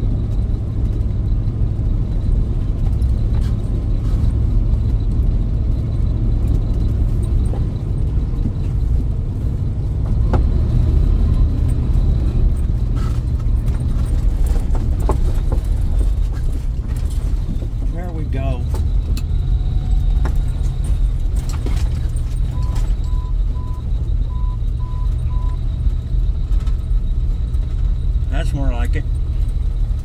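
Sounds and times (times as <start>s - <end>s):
vehicle engine and tyres droning: 0.0s - 30.0s
rattles and knocks: 11.6s - 23.3s.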